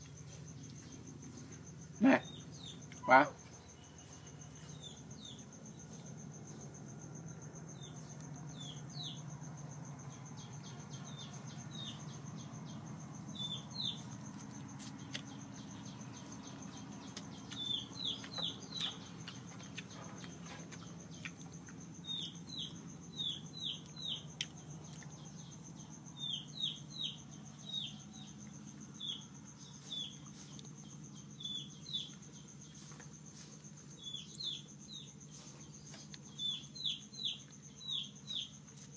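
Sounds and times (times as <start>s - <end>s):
small birds chirping: 0.0s - 6.7s, 7.7s - 38.9s
high insect drone: 0.0s - 38.9s.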